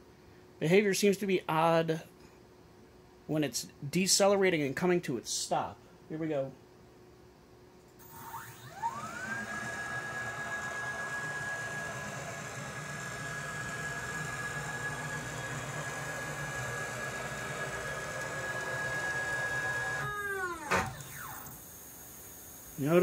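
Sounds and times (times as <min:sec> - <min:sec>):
stepper motor whine: 0:08.0 - 0:23.0.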